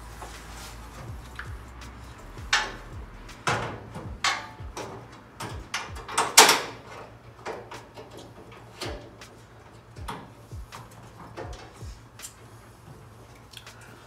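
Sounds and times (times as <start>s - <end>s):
metal radiator knocks and scraping clunks: 3.4s - 11.8s.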